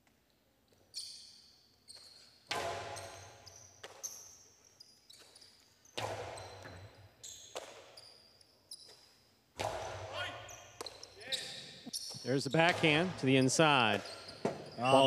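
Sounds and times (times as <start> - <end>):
short high squeaks: 0.9 - 9.3, 10.2 - 12.7
ball cracking against walls: 2.5 - 4.2, 5.9 - 7.9, 9.6 - 10.2.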